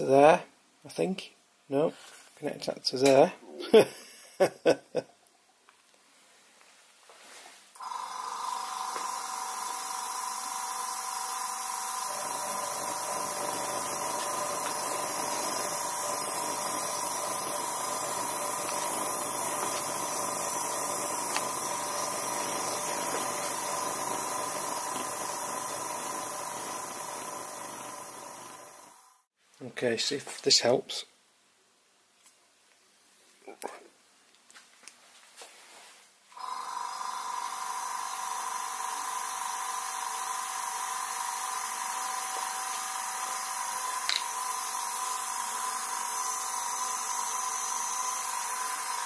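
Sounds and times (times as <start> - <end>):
compressed air hissing: 8.6 - 29.1, 37.5 - 49.0.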